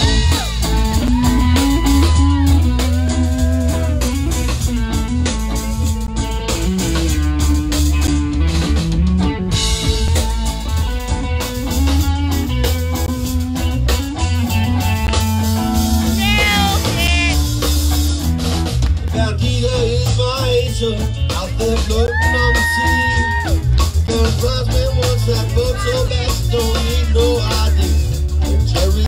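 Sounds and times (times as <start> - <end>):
bass guitar: 0.0 - 29.0
drum kit: 0.0 - 29.0
electric guitars: 0.0 - 29.0.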